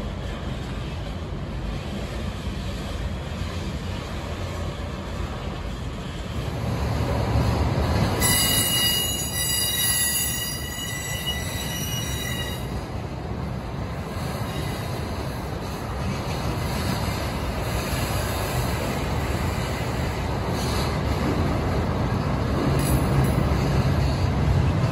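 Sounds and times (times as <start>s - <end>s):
train wheels rumbling on rail: 0.0s - 24.9s
steel wheel squeal: 8.2s - 12.8s.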